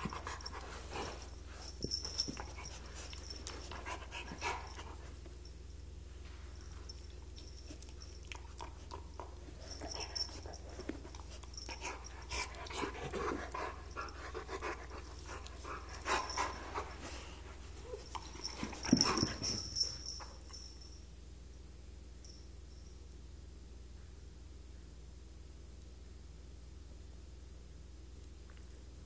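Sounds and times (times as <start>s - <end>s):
dog breathing and noises: 0.0s - 20.8s
animals scuffling: 9.6s - 20.5s.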